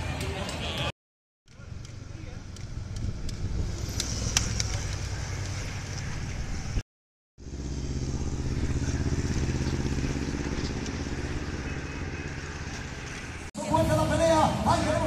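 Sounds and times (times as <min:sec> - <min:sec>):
bicycles riding past: 0:01.5 - 0:06.8, 0:07.4 - 0:15.0
motorcycle engine running: 0:07.4 - 0:13.5.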